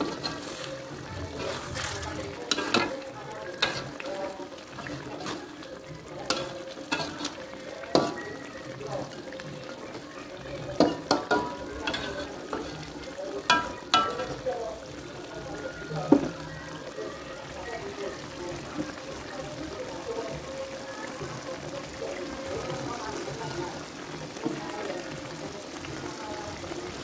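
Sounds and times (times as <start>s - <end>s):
spatula scraping metal wok: 0.0s - 8.4s, 10.8s - 14.4s
sauce sizzling: 0.0s - 27.0s.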